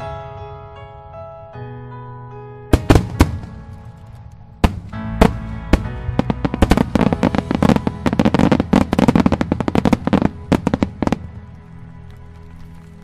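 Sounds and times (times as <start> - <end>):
music playing: 0.0 - 13.0
firework shells bursting: 2.8 - 13.0.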